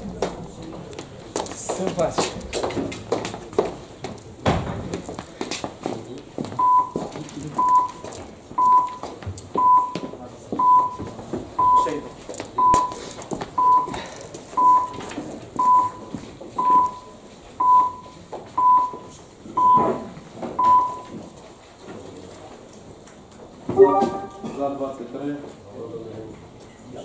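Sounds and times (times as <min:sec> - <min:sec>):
room murmur: 0:00.0 - 0:27.0
short high timer beeps: 0:12.6 - 0:13.0, 0:23.8 - 0:24.6.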